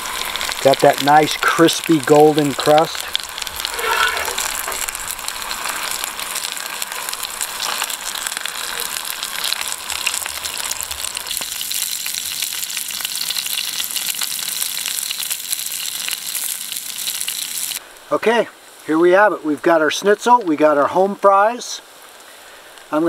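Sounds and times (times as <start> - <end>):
hot oil sizzling and crackling: 0.0 - 23.0.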